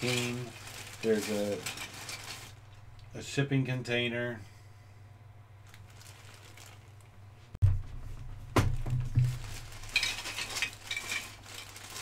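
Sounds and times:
plastic bag crinkling: 0.0 - 2.6, 5.6 - 7.2, 8.8 - 12.0
bag of parts thumping: 7.6 - 12.0.

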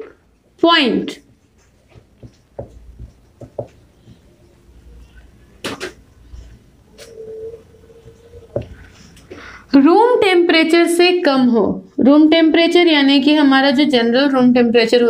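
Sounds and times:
marker writing on whiteboard: 1.1 - 9.2.

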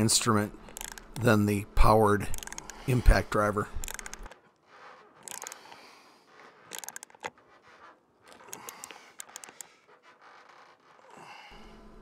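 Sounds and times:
ratchet wrench clicking: 0.6 - 1.3, 2.2 - 3.0, 3.8 - 4.4, 5.2 - 5.8, 6.7 - 7.3, 8.3 - 9.7.

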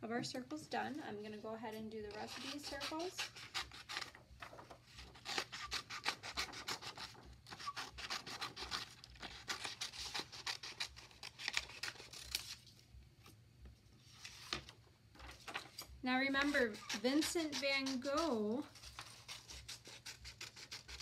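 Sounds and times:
scissors snipping paper: 2.1 - 4.2, 5.0 - 12.6, 16.4 - 21.0
paper rustling: 3.9 - 5.5, 14.0 - 16.6.

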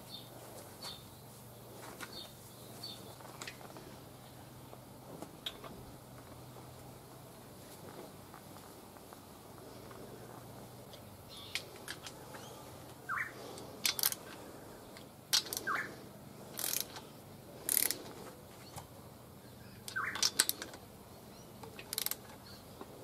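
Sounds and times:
bird chirping: 0.0 - 1.4, 11.2 - 11.7, 12.3 - 13.4, 15.6 - 16.0, 19.4 - 20.6
socket wrench ratcheting: 13.8 - 14.2, 15.3 - 15.8, 16.5 - 17.0, 17.7 - 18.0, 19.9 - 20.8, 21.6 - 22.3.

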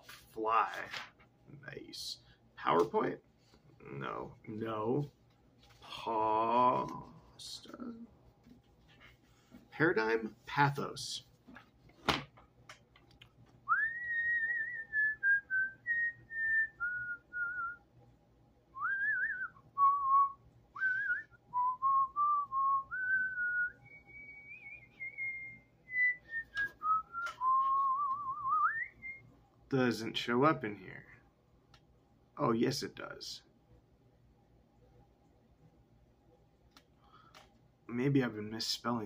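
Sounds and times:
person whistling a tune: 13.7 - 17.8, 18.8 - 29.2.

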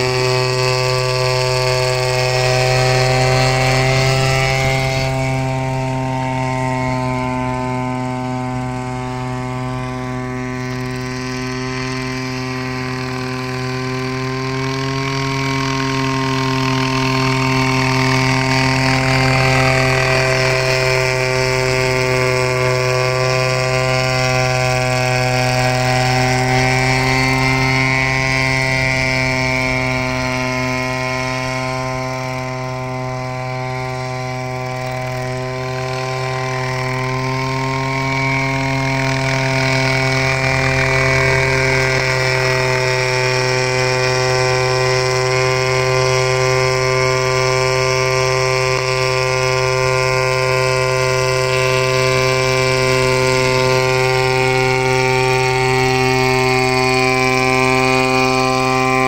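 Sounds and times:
helicopter engine and rotor hum: 0.0 - 59.0.

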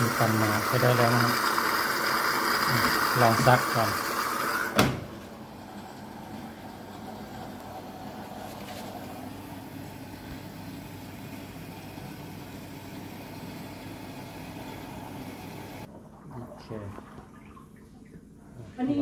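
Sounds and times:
washing machine drum running: 0.0 - 8.2.

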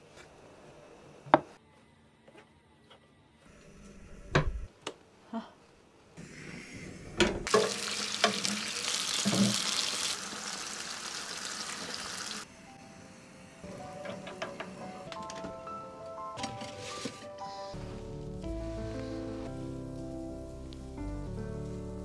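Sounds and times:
mushrooms sizzling in a pan: 7.5 - 12.5.

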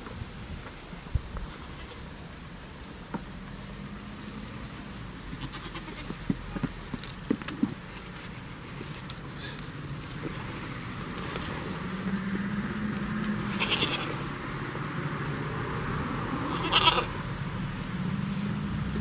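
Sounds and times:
goat bleating: 5.3 - 6.2, 13.5 - 14.2, 16.4 - 17.2.

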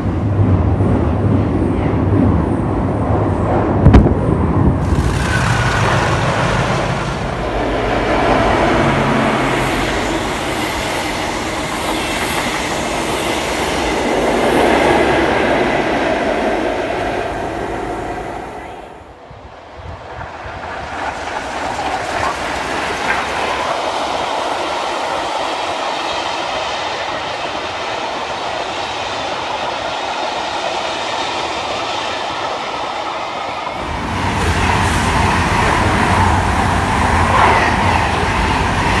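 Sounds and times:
diesel train rumbling past: 0.0 - 39.0
train wheels clattering on rails: 4.8 - 16.5, 20.1 - 39.0.

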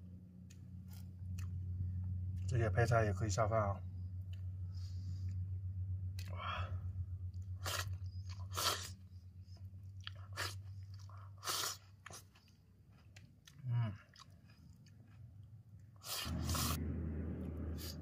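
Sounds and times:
low steady hum: 0.0 - 18.0
chewing: 0.4 - 2.5, 4.0 - 6.4, 7.3 - 16.8
slurping noodles: 11.2 - 12.2, 16.0 - 16.8.

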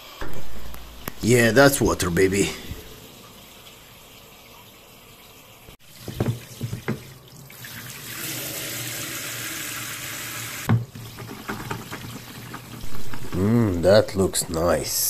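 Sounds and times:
loud bump: 0.2 - 3.0.

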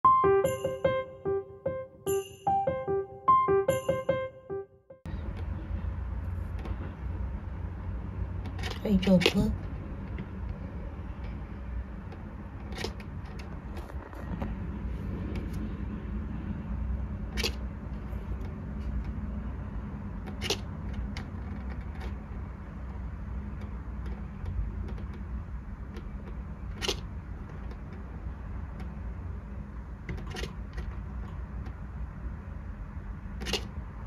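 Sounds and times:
low background rumble: 5.0 - 34.0.

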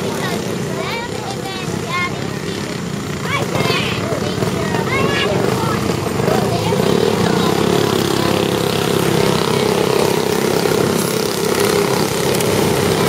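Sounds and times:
go-kart engines racing drone: 0.0 - 13.0.

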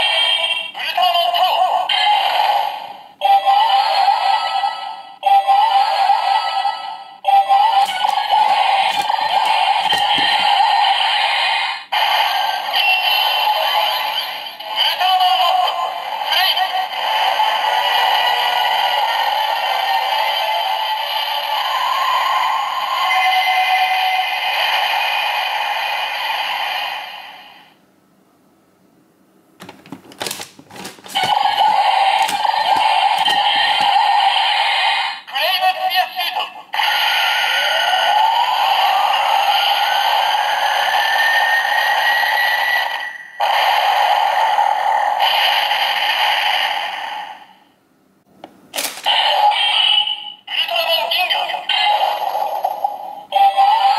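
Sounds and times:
toy electronic sound and music: 3.2 - 18.6, 31.0 - 46.9
plastic toy clicks and rattles: 7.8 - 10.4, 29.6 - 34.0, 48.8 - 49.1.

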